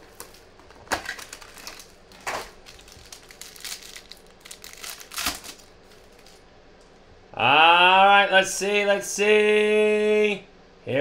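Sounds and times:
cardboard rustling: 0.0 - 6.4
plastic crinkling: 0.0 - 6.4
sharp crackles: 0.0 - 6.4.

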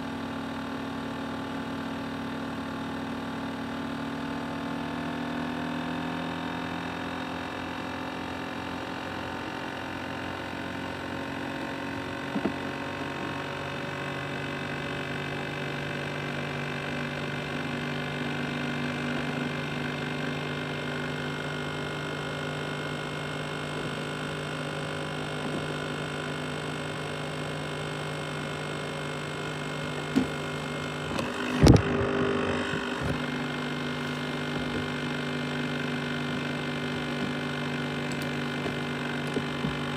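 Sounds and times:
laptop fan humming: 8.8 - 39.9.

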